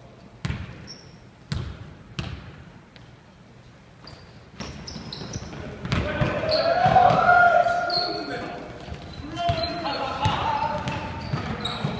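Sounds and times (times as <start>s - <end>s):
basketball bouncing on wooden floor: 0.4s - 0.8s, 1.5s - 2.6s, 4.6s - 7.4s, 8.8s - 11.9s.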